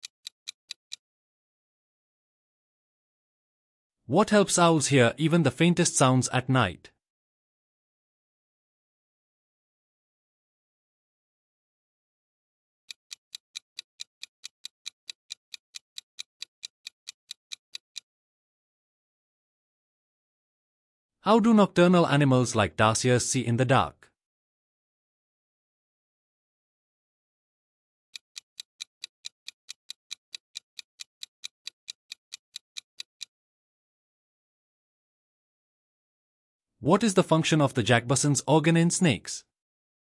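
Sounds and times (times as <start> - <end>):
countdown timer ticking: 28.2 - 33.3.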